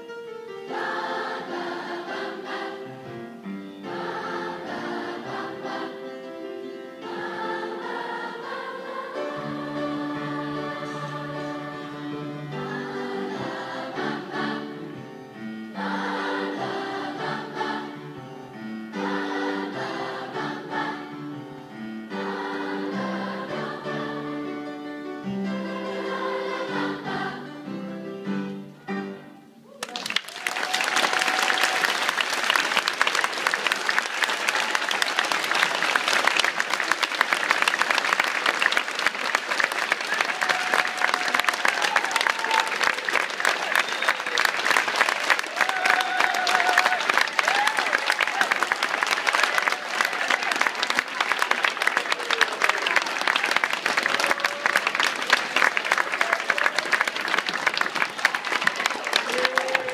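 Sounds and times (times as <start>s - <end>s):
audience applauding: 29.7s - 59.9s.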